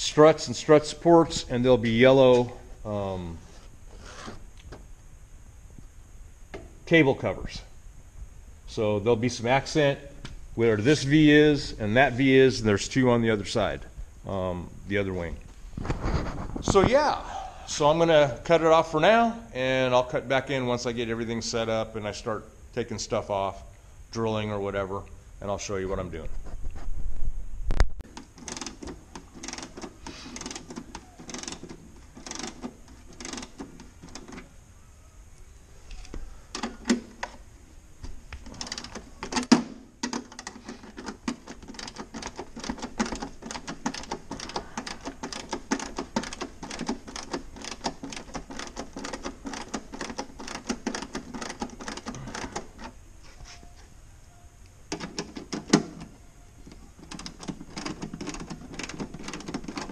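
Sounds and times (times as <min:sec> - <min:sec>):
tool clicking on fasteners: 0:28.0 - 0:34.4, 0:38.4 - 0:53.0, 0:54.9 - 0:56.1, 0:56.7 - 0:59.9.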